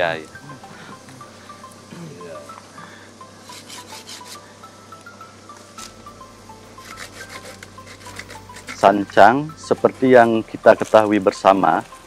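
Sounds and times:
light background music: 0.0 - 12.0
scraping rubs: 3.4 - 4.4, 6.8 - 9.0.

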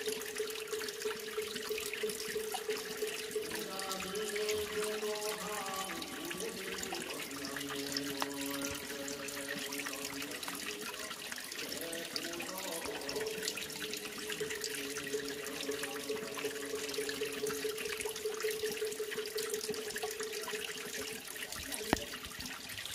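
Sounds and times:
water trickling into a pool: 0.0 - 22.9
chanting held notes: 3.4 - 17.2.

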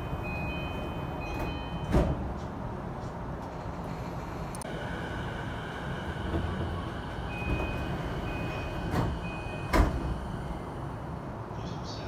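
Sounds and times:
train door chime: 0.0 - 2.3, 5.8 - 10.8
sliding doors clunking open: 0.0 - 11.4
stopped train rumbling: 0.0 - 12.0.

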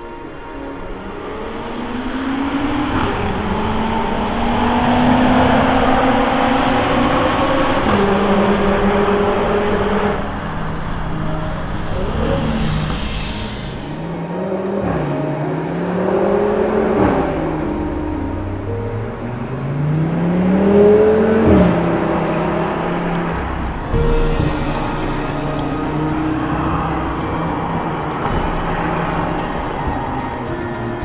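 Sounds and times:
car engine accelerating with upshifts: 1.0 - 31.0.

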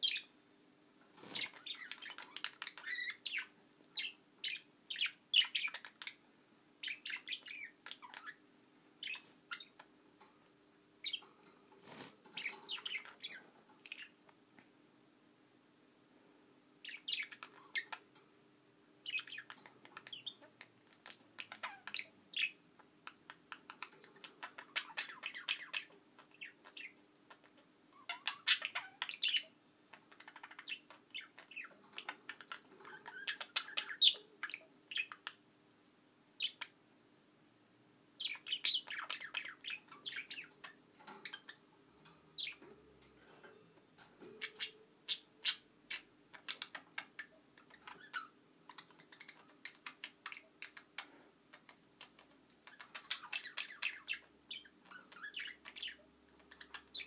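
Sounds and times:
budgerigars chattering: 44.4 - 57.0.

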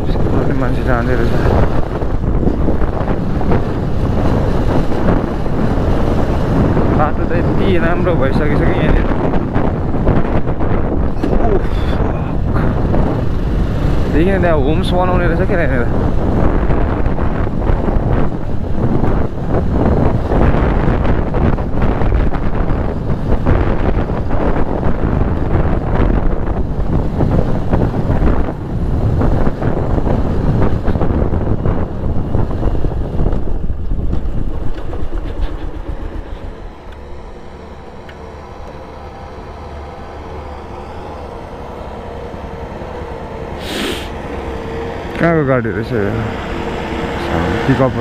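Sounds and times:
tyres on dirt road: 0.0 - 48.0
wind buffeting microphone: 0.0 - 48.0
motorcycle engine running: 28.0 - 48.0.

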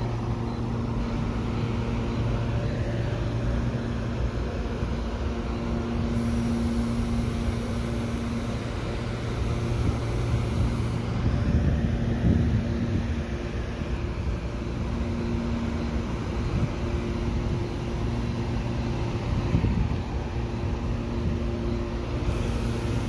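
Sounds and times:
faint high whine: 0.0 - 23.0
train equipment humming: 0.0 - 23.0.

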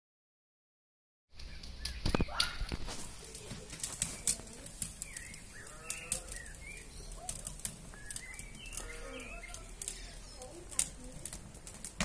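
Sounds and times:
birdsong whistled notes: 5.0 - 10.2.

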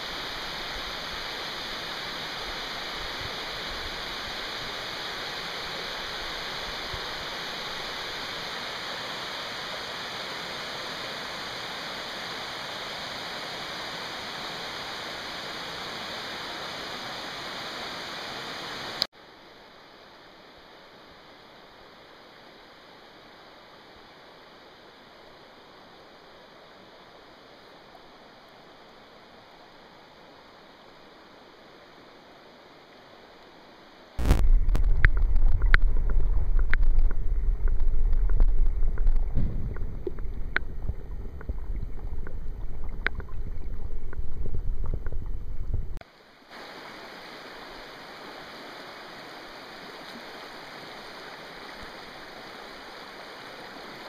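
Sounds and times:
river water rushing: 0.0 - 19.1, 26.8 - 54.0
water running over pebbles: 34.2 - 45.6
sharp clicks underwater: 34.2 - 46.0
underwater current rumble: 34.2 - 46.0.

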